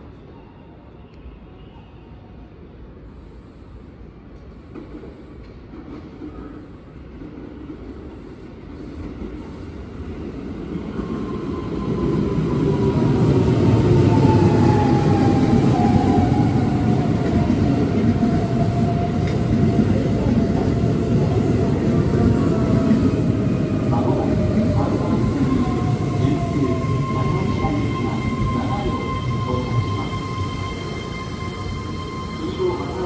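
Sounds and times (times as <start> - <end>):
electric train rumble: 7.2 - 33.0.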